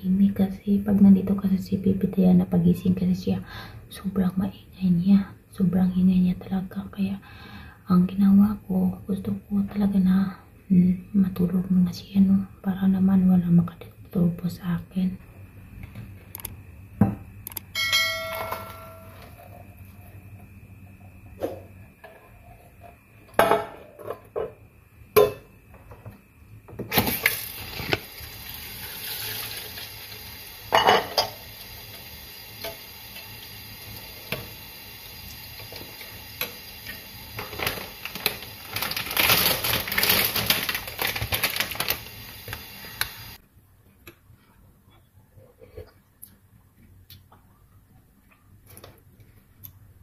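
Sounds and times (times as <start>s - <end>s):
spoon clinking on glass bowl: 17.8s - 19.2s.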